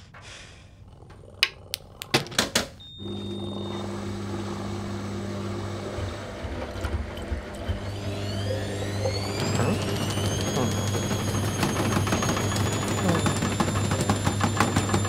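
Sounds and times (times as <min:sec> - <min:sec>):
washing machine motor hum: 0:01.0 - 0:15.0
sharp clicks and knocks: 0:01.1 - 0:02.8.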